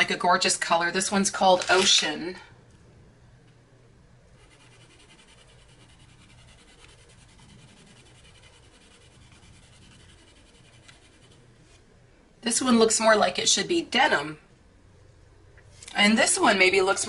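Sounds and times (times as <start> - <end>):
colored pencil scratching on paper: 4.4 - 11.7.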